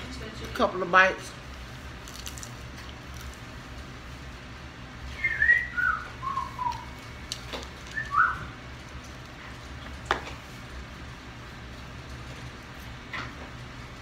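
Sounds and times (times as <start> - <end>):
person whistling falling notes: 5.1 - 7.0, 7.9 - 8.5.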